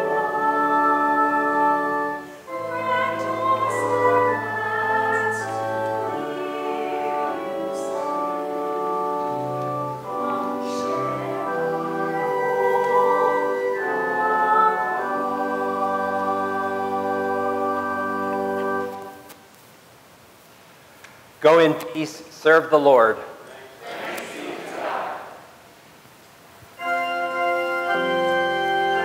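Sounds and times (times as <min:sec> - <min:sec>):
congregation singing a hymn: 0:00.0 - 0:19.3, 0:23.5 - 0:25.5, 0:26.8 - 0:29.0
church organ: 0:00.0 - 0:19.4, 0:26.7 - 0:29.0.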